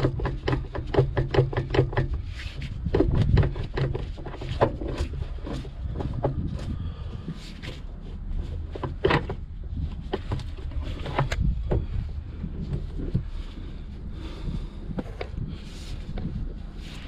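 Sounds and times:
tools clicking and knocking: 0.0 - 6.4
steady low rumble: 2.0 - 17.0.

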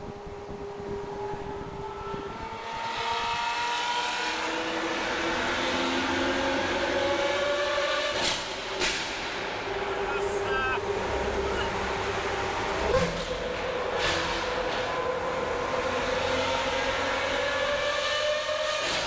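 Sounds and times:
car engine accelerating in tunnel: 0.0 - 19.0.

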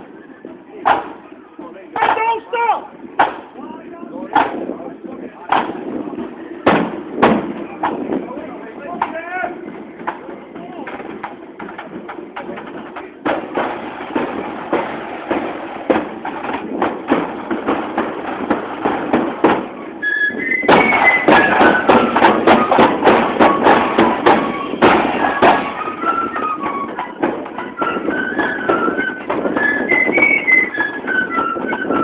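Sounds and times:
marching drums: 0.0 - 32.0
flutes playing a tune: 19.6 - 32.0.

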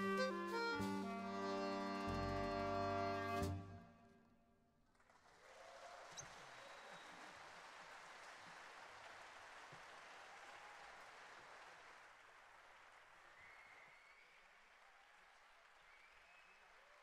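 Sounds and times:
faint audience applause: 4.9 - 17.0.

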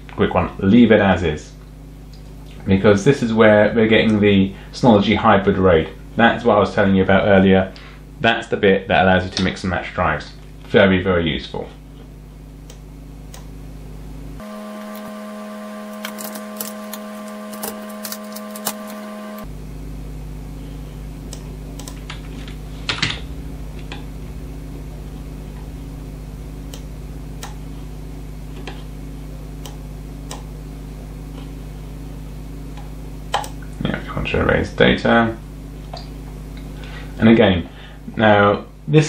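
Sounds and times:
low electrical hum: 0.0 - 39.0.

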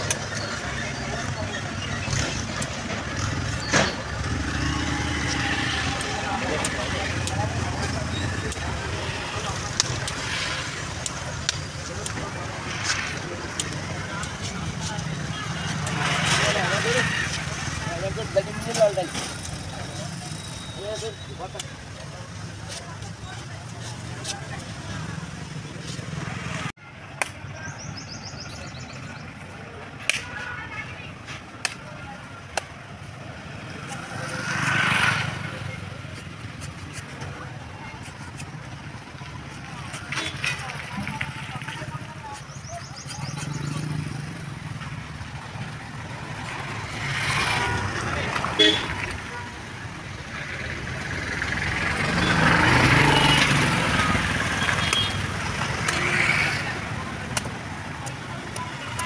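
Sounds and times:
vehicle engine passing by: 33.4 - 35.8, 50.4 - 57.2.

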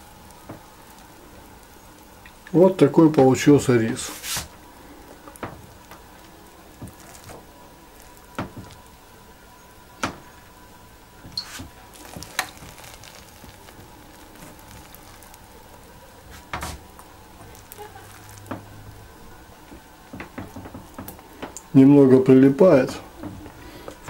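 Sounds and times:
low steady background noise: 0.0 - 24.0
rice paddle tapping and scraping: 3.1 - 4.6.

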